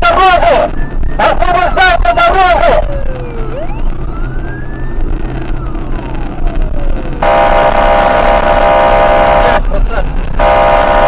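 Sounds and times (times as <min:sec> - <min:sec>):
engine and road hum: 0:00.0 - 0:11.0
police siren wailing: 0:00.0 - 0:11.0
blaring horn tone: 0:07.2 - 0:09.7, 0:10.4 - 0:11.0.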